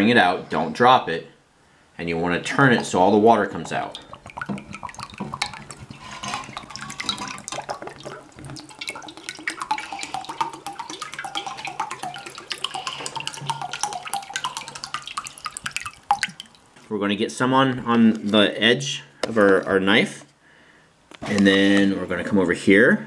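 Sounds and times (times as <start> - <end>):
small drips and splashes: 2.5 - 16.9
water trickling and dripping: 2.5 - 16.9.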